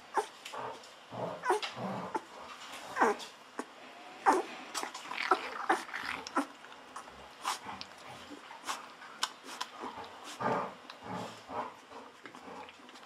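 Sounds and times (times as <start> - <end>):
puppy squeaks and whimpers: 1.4 - 2.3, 2.9 - 4.5
puppy sucking from bottle: 4.3 - 10.2.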